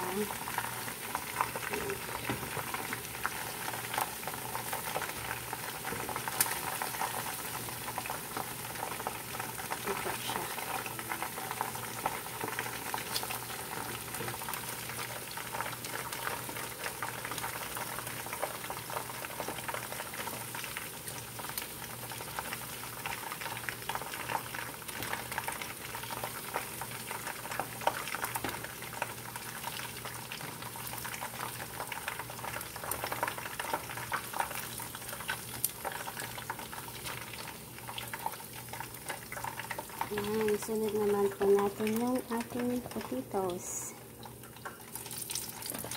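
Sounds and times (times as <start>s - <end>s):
chicken frying in oil: 0.0s - 45.9s.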